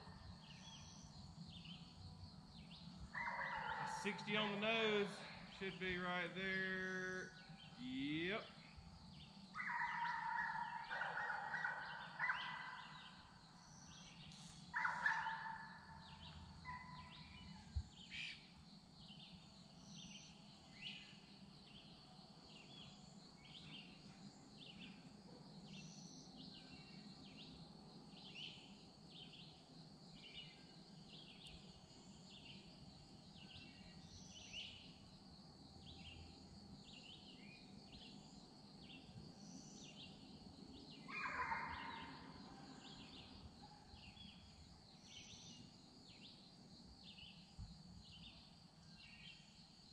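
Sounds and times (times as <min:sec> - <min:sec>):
bird chirping: 0:00.0 - 0:35.0
high insect drone: 0:00.0 - 0:49.9
drawn-out bird call: 0:41.1 - 0:42.4.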